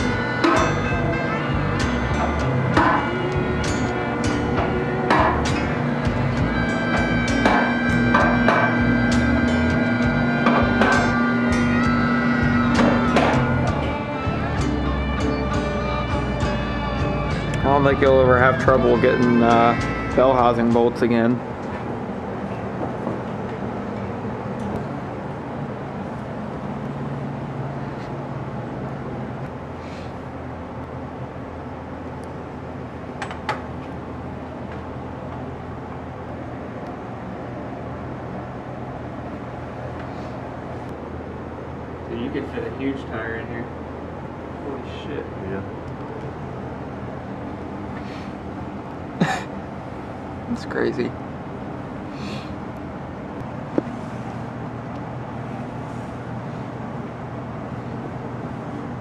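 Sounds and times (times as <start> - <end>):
low workshop hum: 0.0 - 59.0
sharp knocks: 7.3 - 8.8, 12.8 - 13.5.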